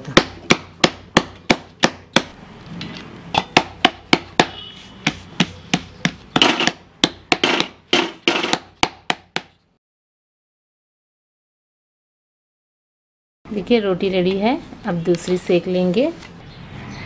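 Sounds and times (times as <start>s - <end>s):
rhythmic sharp knocks: 6.4s - 9.4s.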